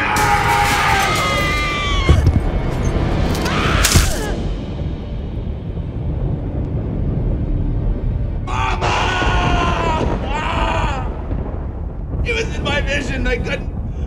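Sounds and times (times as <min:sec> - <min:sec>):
low rumbling music drone: 0:02.2 - 0:10.1.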